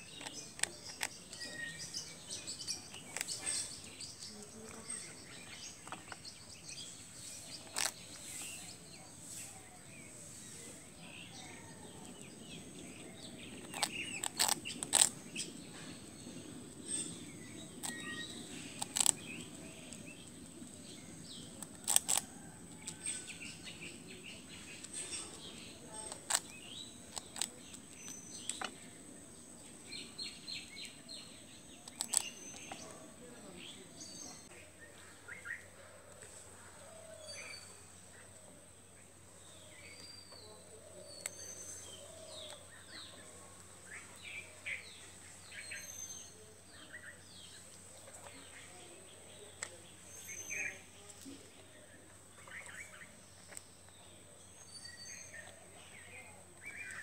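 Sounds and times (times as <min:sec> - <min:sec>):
small birds chirping: 0:00.0 - 0:57.0
animal crunching hard toast: 0:13.6 - 0:15.3, 0:17.7 - 0:19.3, 0:21.6 - 0:23.2, 0:31.9 - 0:32.6.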